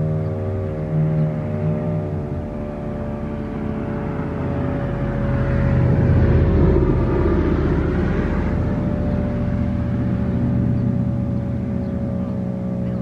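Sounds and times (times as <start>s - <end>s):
low rumble: 0.0s - 13.0s
warning siren steady tone: 0.0s - 13.0s.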